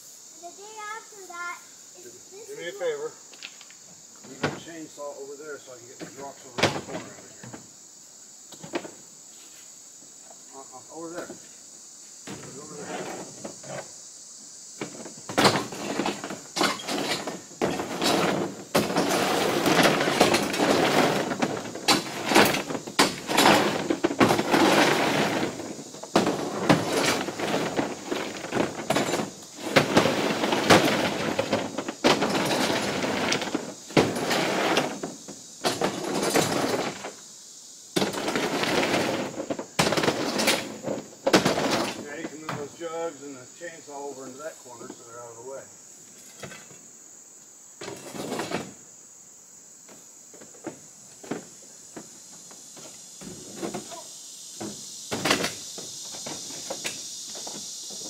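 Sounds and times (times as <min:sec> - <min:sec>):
rocks clattering on metal: 0:14.8 - 0:37.2, 0:38.0 - 0:42.8, 0:47.8 - 0:48.8, 0:54.6 - 0:58.0.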